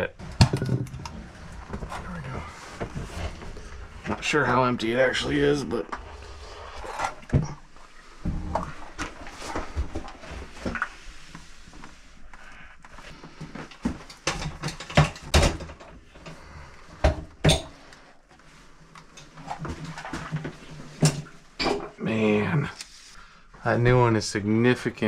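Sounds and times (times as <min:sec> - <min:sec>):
water heater knocking and scraping: 0:13.4 - 0:17.8.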